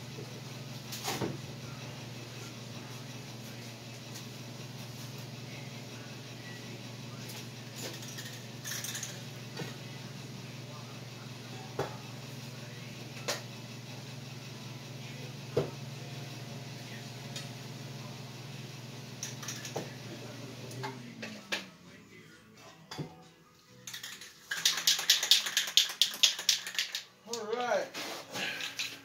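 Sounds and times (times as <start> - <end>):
motor hum winding down: 1.4 - 22.0.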